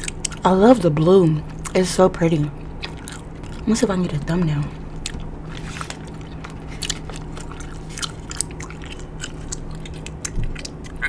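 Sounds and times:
gum chewing smacks: 0:00.0 - 0:00.5, 0:02.8 - 0:03.7, 0:05.0 - 0:11.0
low steady hum: 0:00.0 - 0:11.0.

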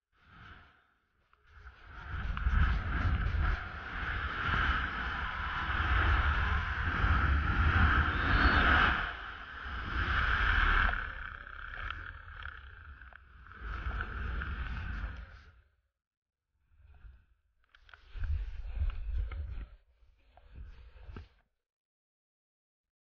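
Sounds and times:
wind rushing over microphone: 0:01.6 - 0:15.6, 0:18.1 - 0:19.8.

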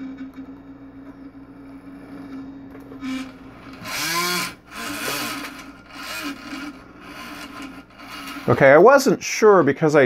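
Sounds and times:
steady low hum: 0:00.0 - 0:10.0
servo motor whining: 0:03.0 - 0:08.8.

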